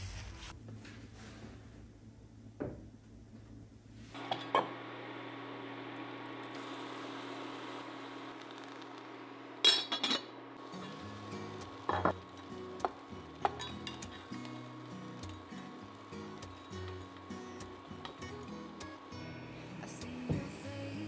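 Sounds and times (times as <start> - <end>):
water boiling in a pot: 4.2 - 20.4
pot lid clattering: 11.8 - 14.3.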